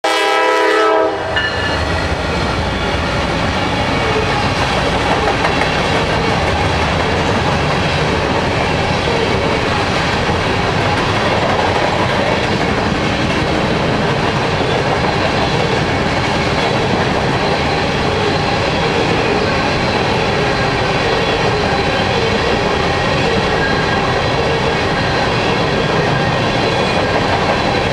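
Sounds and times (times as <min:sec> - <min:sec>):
locomotive horn: 0:00.0 - 0:02.3
train cars rolling on rails: 0:00.1 - 0:27.9.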